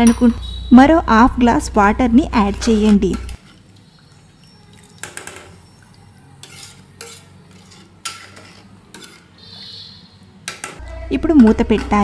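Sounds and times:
ladle stirring watery food: 0:02.4 - 0:09.5
ladle scraping and knocking pot: 0:04.4 - 0:05.8, 0:06.4 - 0:09.3.

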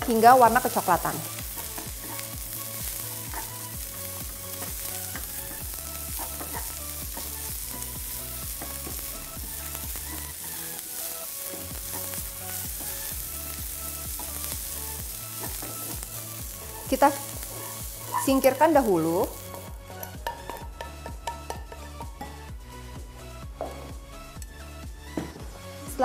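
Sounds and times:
onion sizzling in frying pan: 0:00.0 - 0:22.2
wooden spatula scraping pan: 0:17.1 - 0:18.6.

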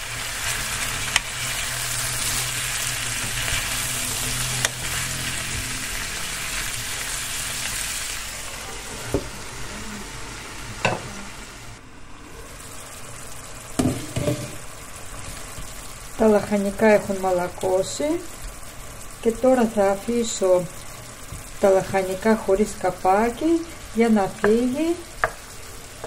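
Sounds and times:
vegetables sizzling in oil: 0:00.0 - 0:26.0.

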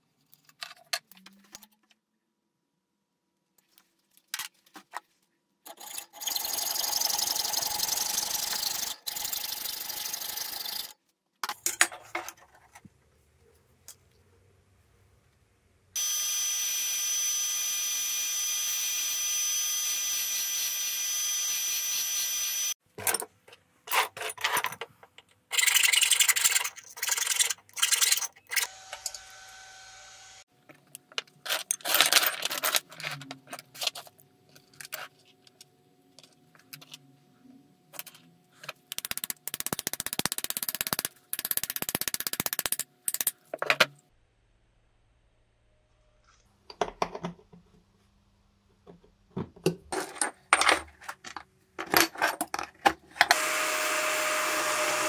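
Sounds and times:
power tool whining: 0:16.0 - 0:22.8, 0:28.6 - 0:30.4, 0:53.3 - 0:55.0.

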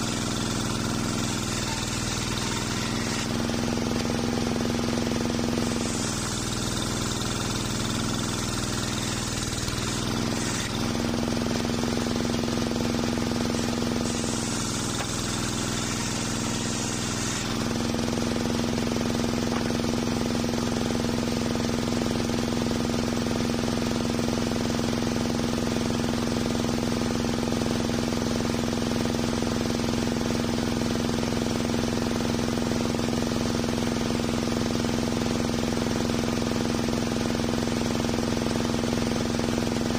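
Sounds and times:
saw blade spinning free: 0:00.0 - 0:18.0
saw blade cutting wood: 0:00.0 - 0:21.2
engine droning: 0:00.0 - 0:22.8.

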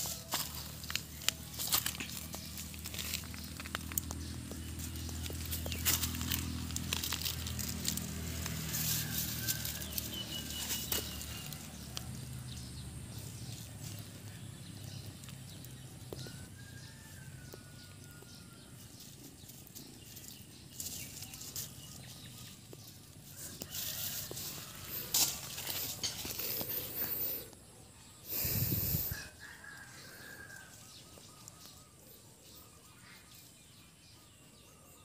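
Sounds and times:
dry leaves rustling: 0:00.0 - 0:27.5.

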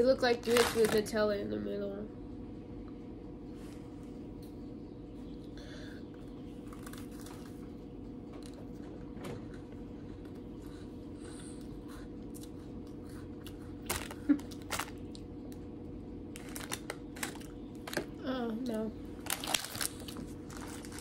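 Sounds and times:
steady low hum: 0:00.0 - 0:21.0
biscuits crunching: 0:00.4 - 0:01.1, 0:06.6 - 0:07.8, 0:11.5 - 0:18.2, 0:19.1 - 0:21.0
packet rustling: 0:00.4 - 0:01.1, 0:13.9 - 0:15.1, 0:16.3 - 0:18.2, 0:19.2 - 0:21.0.

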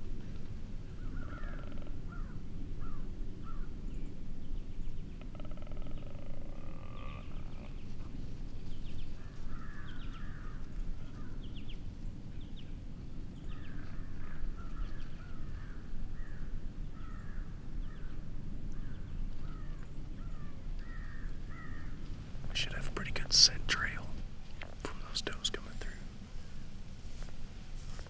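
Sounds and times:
birds calling harshly: 0:00.8 - 0:11.8, 0:13.4 - 0:26.8
steady low rumble: 0:06.0 - 0:28.0.

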